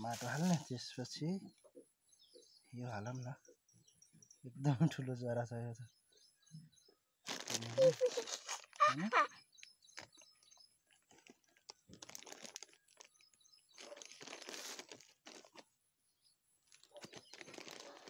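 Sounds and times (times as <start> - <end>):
plastic bag crinkling: 7.2 - 9.3, 10.9 - 15.7, 16.7 - 18.0.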